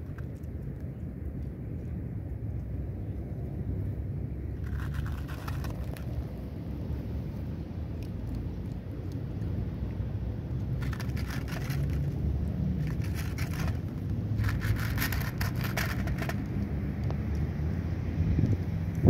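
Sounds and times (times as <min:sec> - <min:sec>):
cat crunching dry kibble: 0:00.0 - 0:01.5, 0:04.5 - 0:17.5
wind on microphone: 0:18.0 - 0:19.0.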